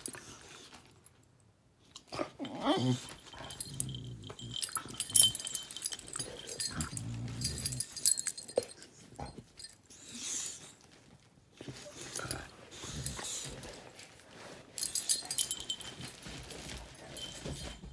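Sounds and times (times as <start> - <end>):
dogs growling: 2.1 - 8.2
collar tags jingling: 2.8 - 10.6, 12.0 - 17.9
bedding rustling: 3.0 - 17.9.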